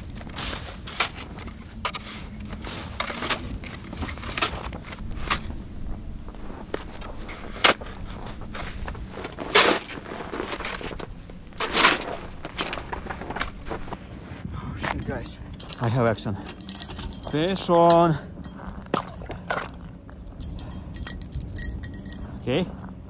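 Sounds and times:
boots crunching in snow: 0.0 - 14.0
snow shovel scraping snow: 0.0 - 14.0.

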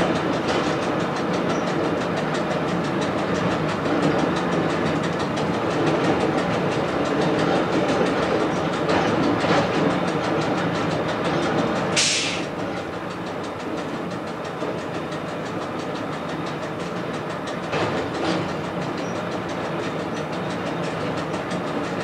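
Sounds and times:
train wheels rumbling on rails: 0.0 - 22.0
short sharp hiss: 12.0 - 12.5.

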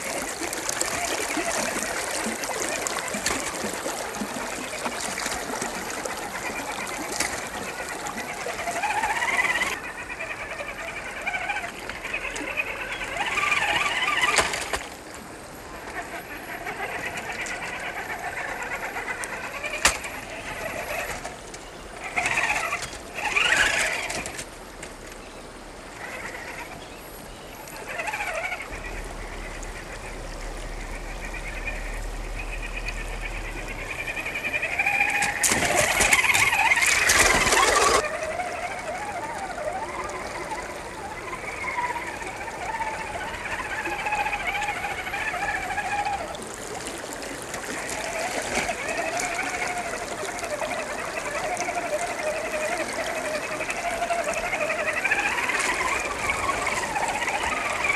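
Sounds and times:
electric motor and gearbox whine: 0.0 - 26.8, 27.6 - 46.6, 47.5 - 57.9
tyres splashing through water: 0.0 - 26.8, 27.8 - 57.9.

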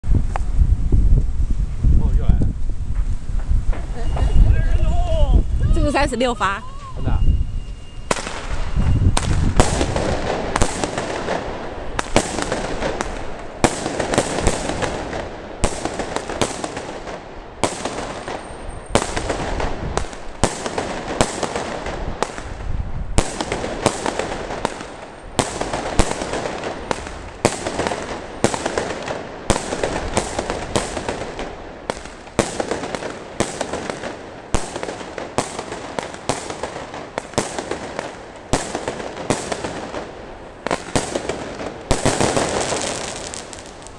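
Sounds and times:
firework crackling and hissing: 0.0 - 43.9
firework bangs: 2.9 - 6.4, 8.0 - 43.9.

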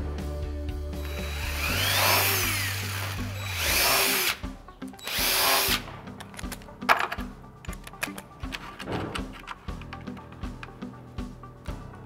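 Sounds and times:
impact driver whirring: 1.0 - 4.4, 5.0 - 5.9.

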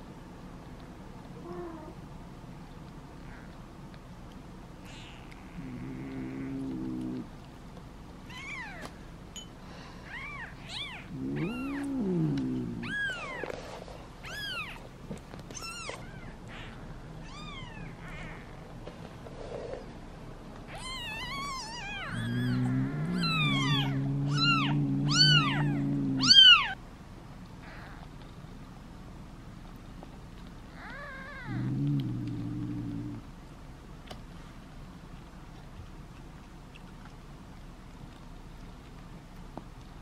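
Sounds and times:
kittens mewing: 10.0 - 13.6, 20.7 - 26.8.

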